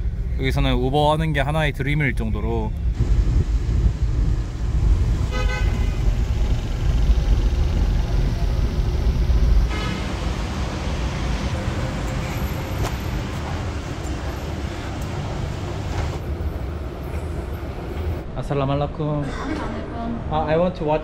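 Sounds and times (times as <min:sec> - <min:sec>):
engine and road rumble: 0:00.0 - 0:18.3
car horn tooting: 0:05.2 - 0:06.2.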